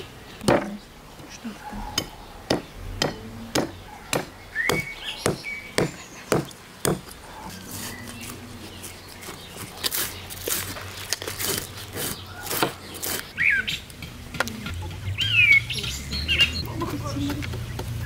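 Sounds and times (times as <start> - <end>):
bird chirp: 0.0 - 11.1, 11.9 - 18.0
scraping and crackling strokes: 7.2 - 14.8.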